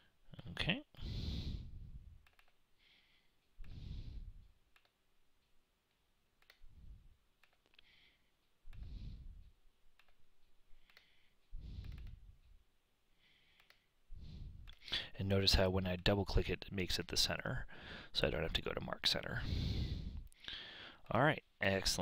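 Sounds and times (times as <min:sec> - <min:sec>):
soft breaths on microphone: 0:01.0 - 0:04.6, 0:06.6 - 0:09.7, 0:10.4 - 0:15.2, 0:19.1 - 0:21.1
computer mouse clicks: 0:02.2 - 0:02.6, 0:03.4 - 0:03.8, 0:04.7 - 0:06.8, 0:07.4 - 0:12.6, 0:13.5 - 0:13.9.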